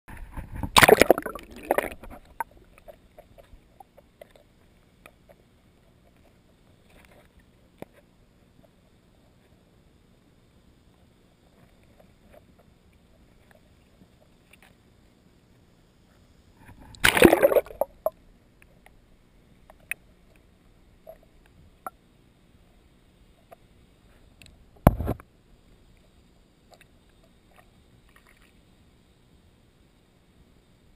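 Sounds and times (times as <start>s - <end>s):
water splashing and sloshing: 0.1s - 4.6s, 16.6s - 18.2s
underwater background hiss: 0.1s - 30.9s
faint underwater clicks and pops: 19.6s - 22.0s, 23.2s - 28.7s.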